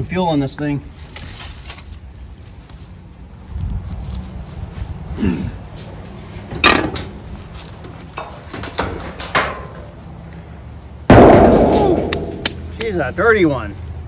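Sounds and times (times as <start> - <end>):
sheet metal knocks and clanks: 6.6 - 7.2, 8.2 - 9.9, 11.1 - 12.7.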